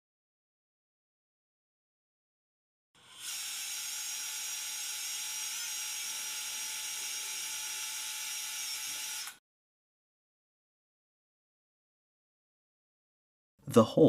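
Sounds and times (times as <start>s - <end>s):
power drill whining: 3.0s - 9.4s.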